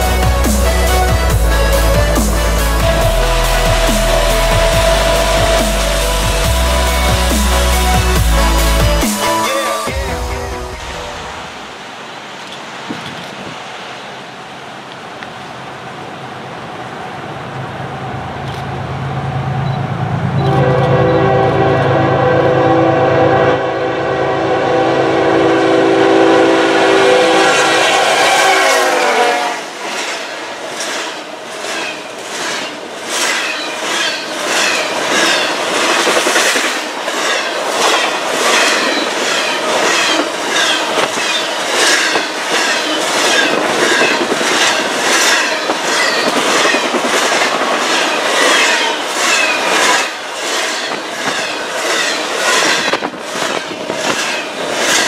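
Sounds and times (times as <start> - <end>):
locomotive air horn: 0.0 - 9.9, 20.4 - 29.7
train rumble: 0.0 - 55.0
train wheels clicking over rail joints: 29.8 - 55.0.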